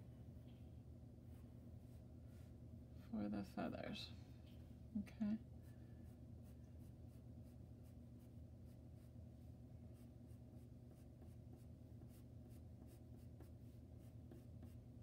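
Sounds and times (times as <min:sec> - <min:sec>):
low steady hum: 0:00.0 - 0:15.0
pencil scratching on paper: 0:09.9 - 0:15.0.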